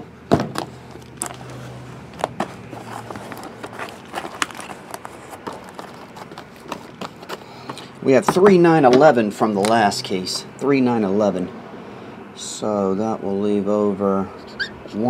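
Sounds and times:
cardboard boxes knocking and tapping: 0.3 - 1.4, 2.2 - 8.5.

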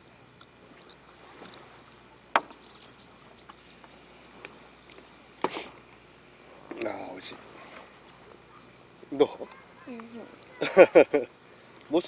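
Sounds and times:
faint high chirping: 1.8 - 5.2.

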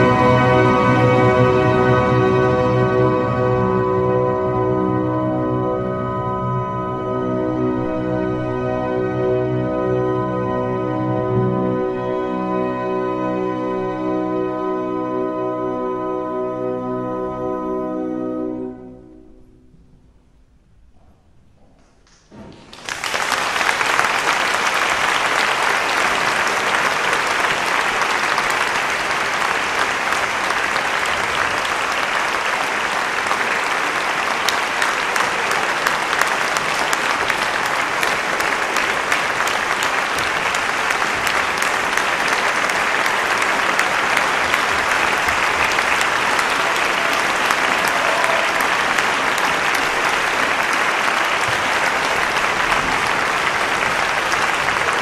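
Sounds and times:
large audience applauding: 0.0 - 3.7, 22.0 - 55.0.

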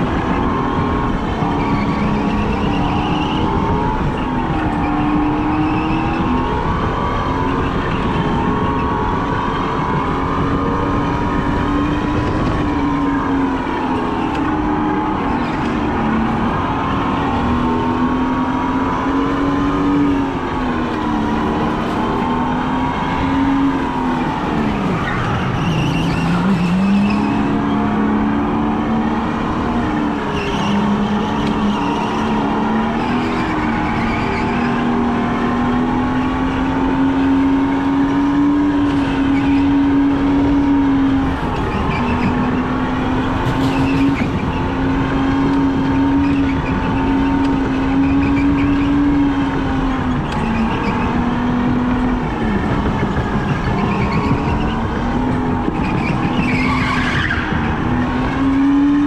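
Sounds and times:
go-kart motor: 0.0 - 59.0.

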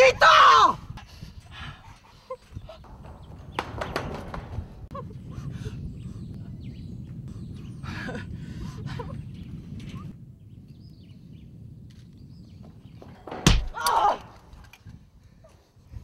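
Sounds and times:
wind rumbling on microphone: 0.0 - 16.0
footsteps on steel grating: 2.0 - 5.1.

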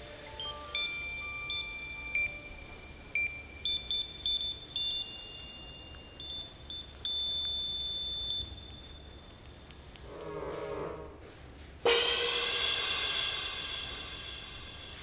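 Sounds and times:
bell-like electronic chime tones: 0.0 - 10.2.

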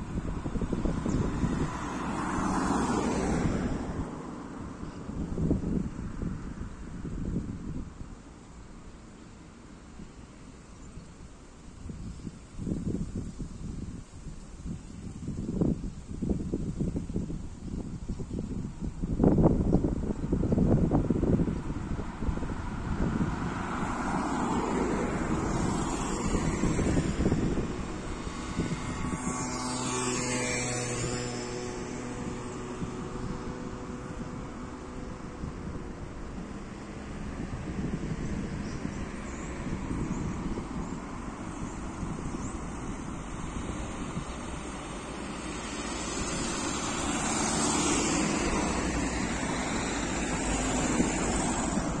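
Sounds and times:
cars passing: 0.0 - 52.0
engine hum: 0.0 - 52.0
street traffic noise: 0.0 - 52.0
motor scooter passing: 0.2 - 4.1, 20.4 - 52.0.

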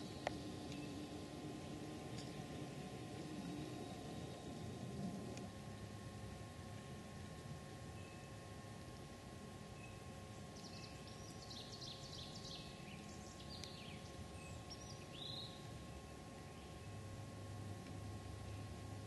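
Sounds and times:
songbird singing: 0.0 - 1.2, 7.9 - 8.4, 9.7 - 17.0, 18.2 - 18.8.

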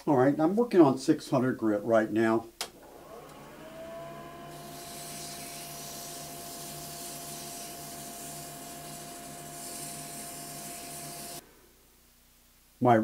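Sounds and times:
lathe motor whine: 2.8 - 11.4
sandpaper hissing: 4.5 - 11.4.

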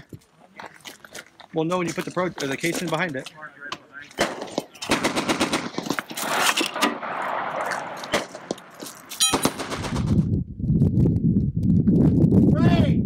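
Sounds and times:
ringing metallic clang: 9.1 - 9.6.

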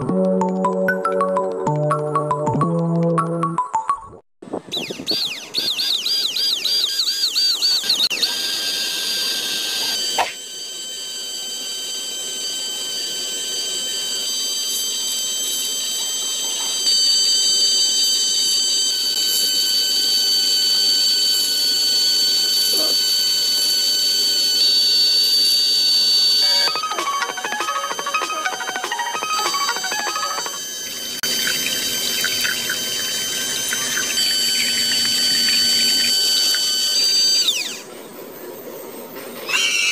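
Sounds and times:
steady whining electronic tones: 4.7 - 39.9
warbling electronic tone: 4.8 - 37.9.

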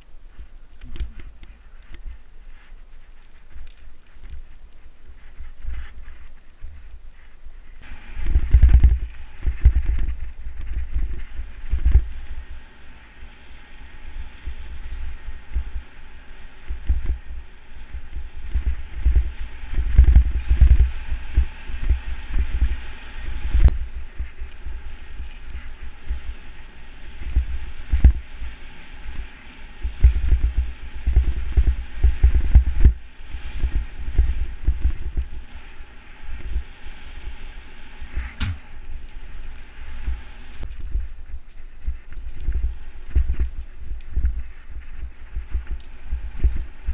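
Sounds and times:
wind noise: 0.0 - 46.9
bike thumping and rattling: 38.1 - 39.1
sharp knocks: 38.4 - 38.7.

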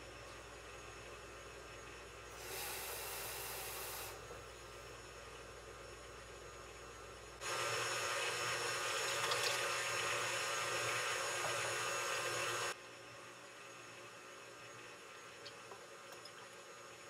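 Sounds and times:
stand mixer whisking batter: 7.4 - 12.8.

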